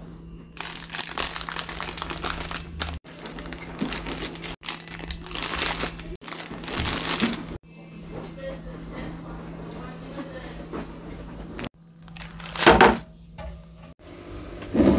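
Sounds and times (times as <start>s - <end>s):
plastic packets crinkling: 0.6s - 7.6s, 12.0s - 13.0s.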